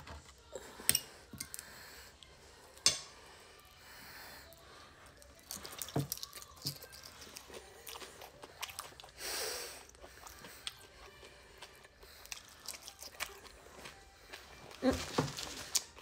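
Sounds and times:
chewing food with wet mouth sounds: 0:05.0 - 0:16.0.

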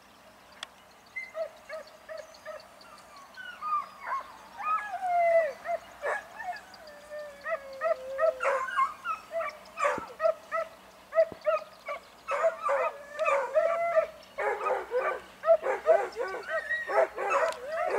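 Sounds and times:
dogs yelping: 0:01.2 - 0:17.9
hunting dogs baying: 0:01.3 - 0:17.9
dog howling: 0:04.0 - 0:10.4, 0:12.3 - 0:17.9.

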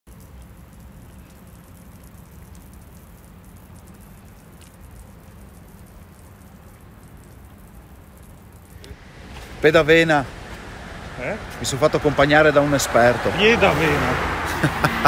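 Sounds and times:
light scattered ticks: 0:00.1 - 0:09.0
low rumble: 0:08.9 - 0:14.7.

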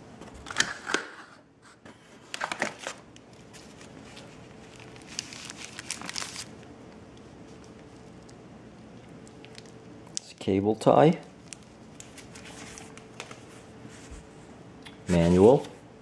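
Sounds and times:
cardboard and paper rustling: 0:01.9 - 0:06.5, 0:11.4 - 0:14.3, 0:15.1 - 0:15.8.

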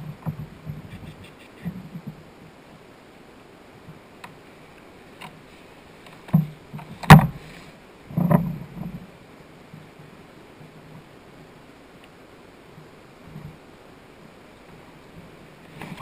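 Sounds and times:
knocks and bumps on kayak: 0:00.0 - 0:01.0, 0:06.2 - 0:07.5.

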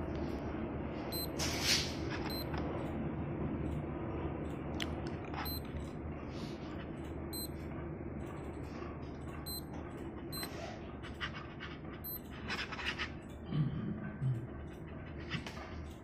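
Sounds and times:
digital watch beeps: 0:01.1 - 0:01.4, 0:02.3 - 0:02.5, 0:05.4 - 0:05.8, 0:07.3 - 0:07.6, 0:09.4 - 0:09.7, 0:10.3 - 0:10.5, 0:12.0 - 0:12.3.

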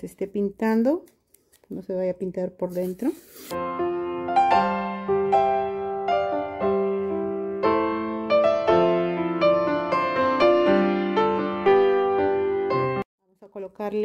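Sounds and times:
piano music: 0:03.6 - 0:13.1.

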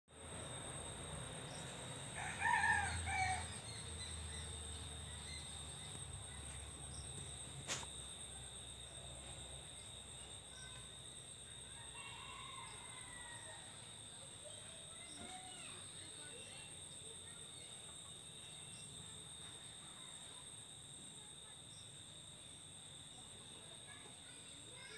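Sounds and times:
insects droning: 0:00.1 - 0:24.9
rooster crowing: 0:02.1 - 0:03.8, 0:11.7 - 0:13.9.

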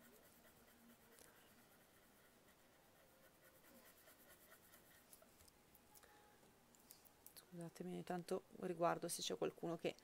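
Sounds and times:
pencil scratching on paper: 0:00.0 - 0:05.4.

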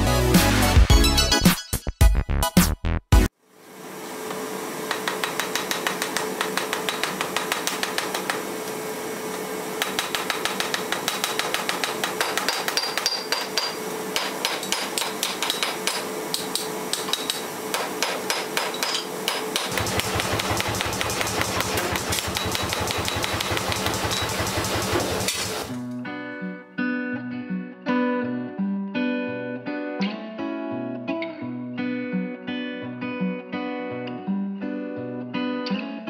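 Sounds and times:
hammer striking hot metal on anvil: 0:04.9 - 0:08.4, 0:09.8 - 0:25.4.

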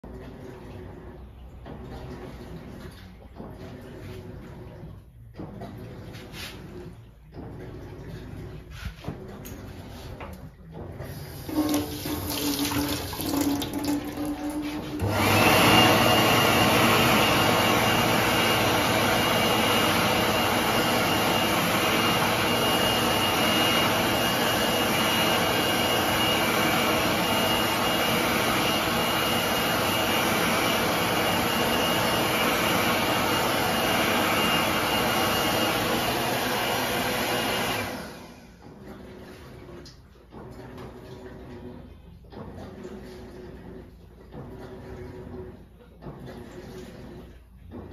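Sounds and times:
hand dryer blowing: 0:05.4 - 0:40.5.

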